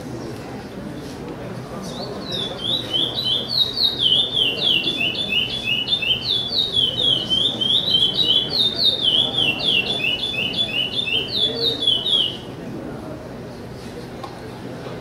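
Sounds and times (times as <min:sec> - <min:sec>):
blackbird singing whistled notes: 0:01.9 - 0:12.5.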